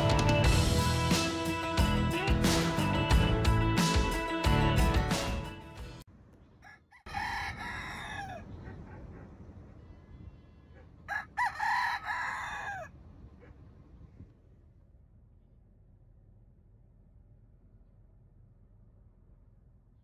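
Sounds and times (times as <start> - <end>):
rooster crowing: 6.6 - 8.5, 11.1 - 13.0.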